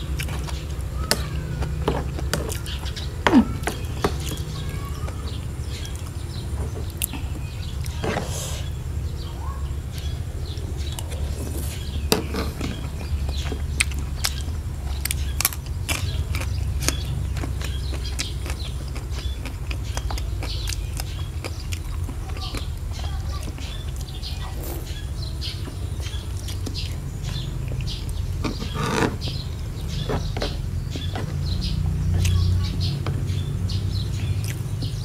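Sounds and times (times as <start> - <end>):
steady low rumble: 2.1 - 35.0
chewing and mouth smacks: 12.8 - 22.8, 34.4 - 34.7.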